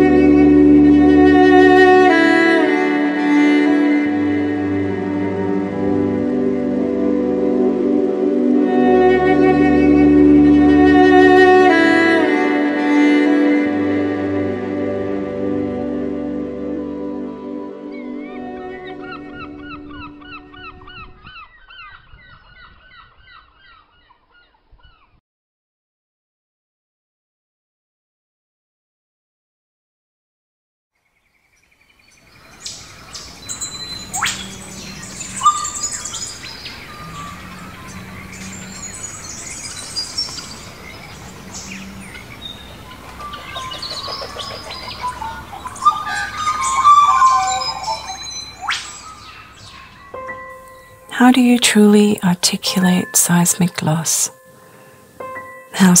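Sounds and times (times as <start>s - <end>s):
low musical drone: 0.0s - 21.0s, 33.2s - 56.0s
flock of birds calling: 32.6s - 50.9s.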